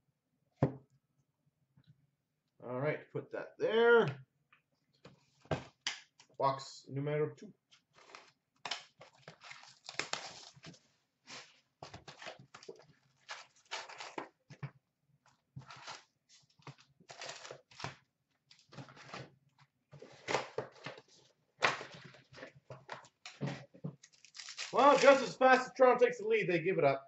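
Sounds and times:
card packs rustling: 9.0s - 10.8s, 11.4s - 14.3s, 15.6s - 17.9s, 20.0s - 25.4s.

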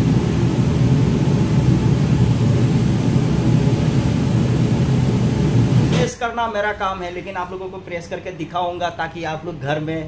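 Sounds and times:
ironing machine rumble and whine: 0.0s - 6.3s.

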